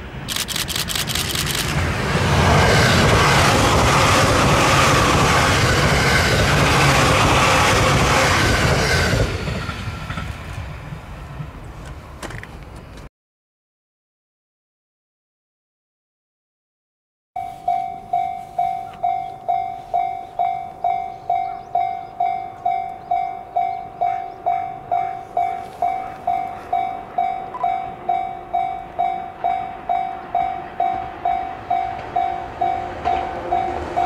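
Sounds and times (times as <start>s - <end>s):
level crossing warning bell: 17.4s - 34.0s.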